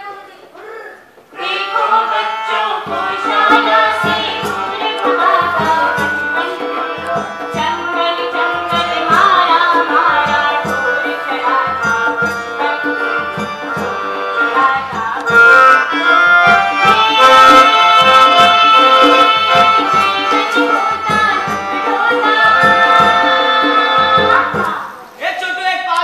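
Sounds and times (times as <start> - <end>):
music melody: 1.4 - 25.0.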